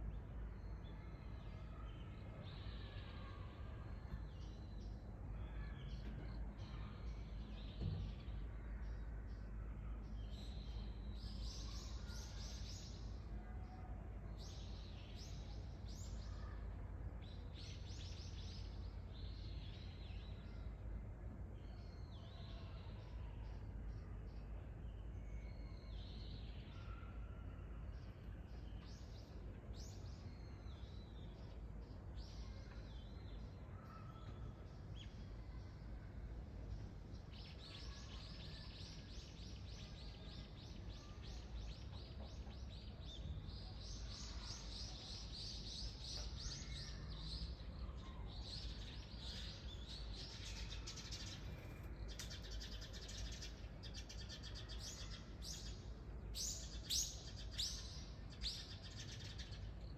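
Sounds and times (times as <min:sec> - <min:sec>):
small birds chirping: 0:36.6 - 0:59.9.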